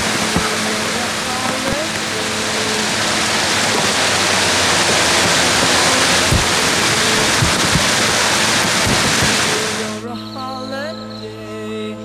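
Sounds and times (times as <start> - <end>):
water rushing: 0.0 - 10.0
dull low thumps: 3.4 - 9.8.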